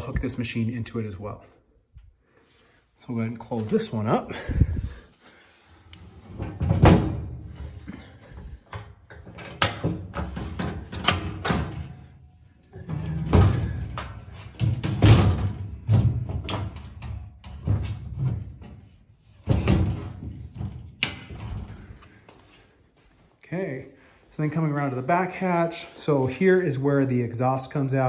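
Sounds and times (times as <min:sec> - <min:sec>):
metal hatch knocking and latching: 0:12.8 - 0:18.7.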